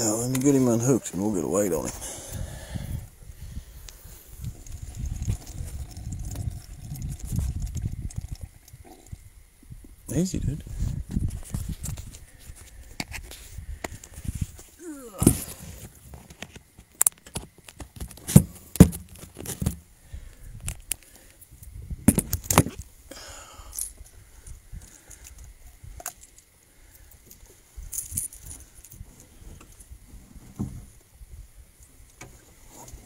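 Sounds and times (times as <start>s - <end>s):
rustling and shuffling: 10.7s - 19.8s.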